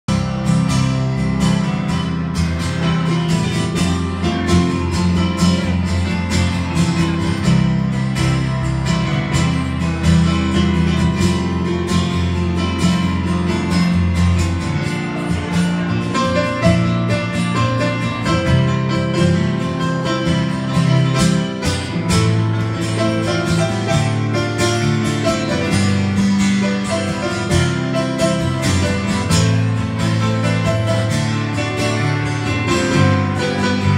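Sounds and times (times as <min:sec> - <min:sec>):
bass line: 0:00.0 - 0:33.9
electric keyboard: 0:00.0 - 0:33.9
strummed acoustic guitar: 0:00.1 - 0:33.9.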